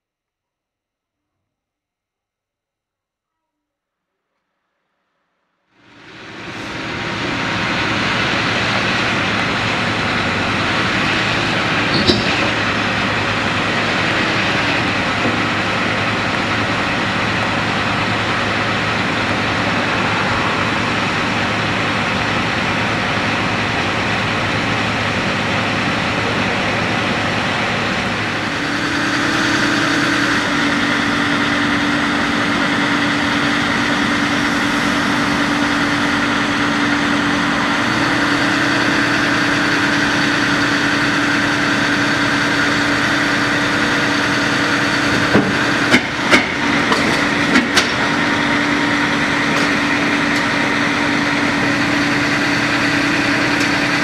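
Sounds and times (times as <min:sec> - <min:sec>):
excavator diesel engine running: 0:05.8 - 0:54.0
steady hum: 0:05.8 - 0:54.0
metal clank: 0:11.9 - 0:12.7.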